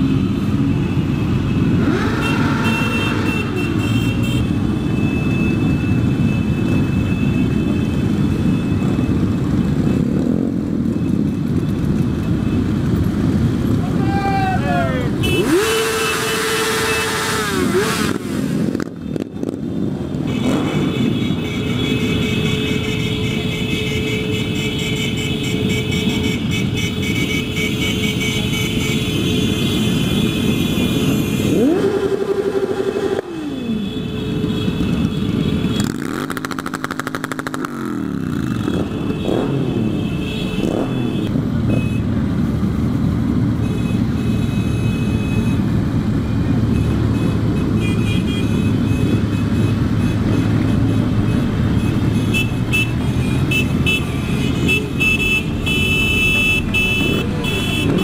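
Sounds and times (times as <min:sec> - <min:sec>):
motorcycle engine revving: 0:00.0 - 0:04.0, 0:15.2 - 0:22.5, 0:29.7 - 0:34.0, 0:34.6 - 0:58.0
many motorcycle engines: 0:00.0 - 0:58.0.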